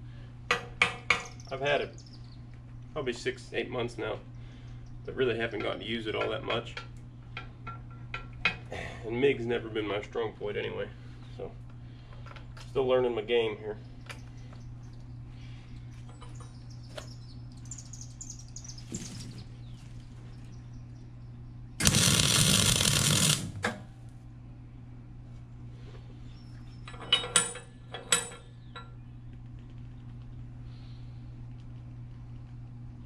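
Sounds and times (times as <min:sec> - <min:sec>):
welding arc hissing: 0:21.8 - 0:23.7.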